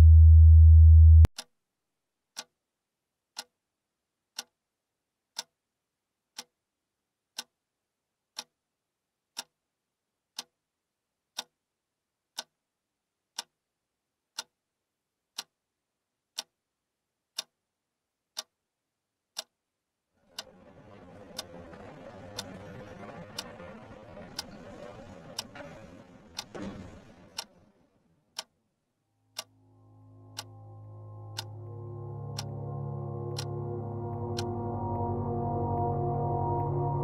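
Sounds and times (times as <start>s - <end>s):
low rumbling drone: 0.0s - 1.3s, 29.5s - 37.0s
clock ticking: 0.0s - 1.5s, 2.3s - 2.6s, 3.3s - 3.6s, 4.3s - 4.6s, 5.3s - 5.6s, 6.3s - 6.6s, 7.3s - 7.6s, 8.3s - 8.6s, 9.3s - 9.6s, 10.3s - 10.6s, 11.3s - 11.6s, 12.3s - 12.6s, 13.3s - 13.6s, 14.3s - 14.6s, 15.3s - 15.6s, 16.3s - 16.6s, 17.3s - 17.6s, 18.3s - 18.6s, 19.3s - 19.6s, 20.3s - 28.6s, 29.3s - 29.6s, 30.3s - 30.6s, 31.3s - 36.8s.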